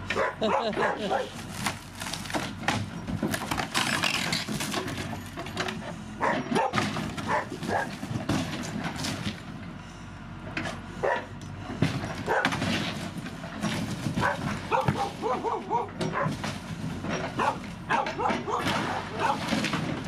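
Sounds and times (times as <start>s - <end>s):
diesel engine running: 0.0s - 20.0s
dog barking: 0.1s - 1.4s, 6.2s - 7.9s, 11.0s - 11.4s, 12.3s - 12.6s, 14.2s - 16.4s, 17.4s - 19.5s.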